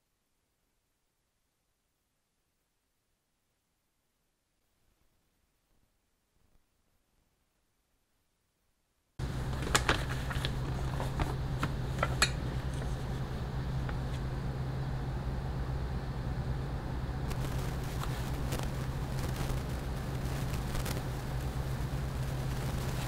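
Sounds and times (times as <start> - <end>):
low hum and hiss: 0.0 - 23.0
tools clicking and tapping: 12.0 - 12.9.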